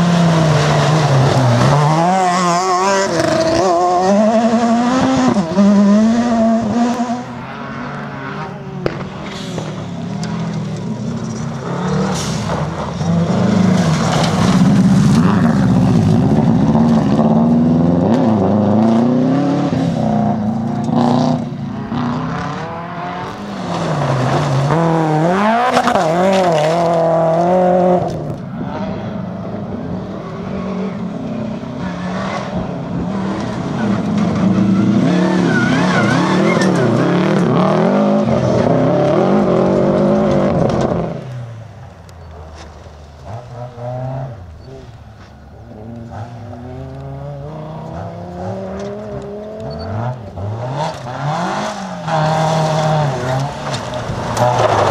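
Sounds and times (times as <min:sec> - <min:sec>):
rally car engines revving: 0:00.0 - 0:54.9
tyres on gravel: 0:08.7 - 0:17.0, 0:39.4 - 0:54.9.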